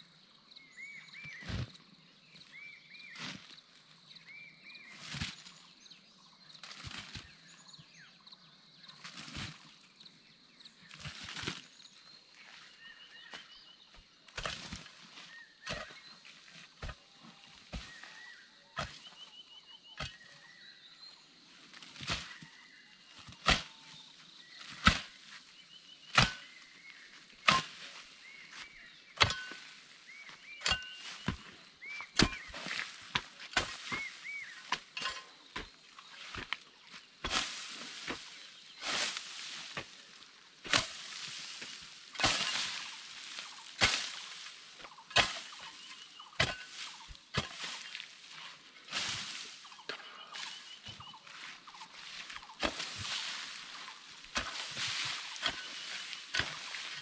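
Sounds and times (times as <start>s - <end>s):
hoe chopping into earth: 14.4s - 19.2s, 20.0s - 20.3s, 22.0s - 22.5s, 23.1s - 25.4s, 26.0s - 48.2s, 52.5s - 57.0s.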